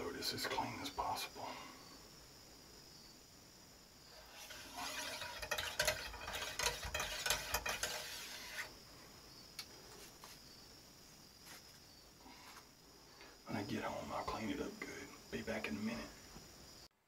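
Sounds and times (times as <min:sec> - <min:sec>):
cleaning rod rubbing in barrel: 0:04.1 - 0:08.7.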